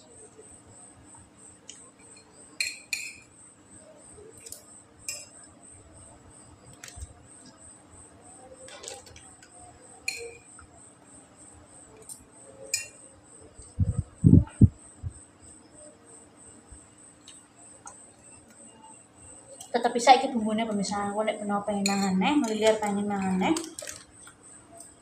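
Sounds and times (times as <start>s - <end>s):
cricket chirping: 0.0s - 25.0s
metal spoon clinking on plate: 2.1s - 3.3s, 10.0s - 10.5s, 12.7s - 13.0s, 21.8s - 22.9s.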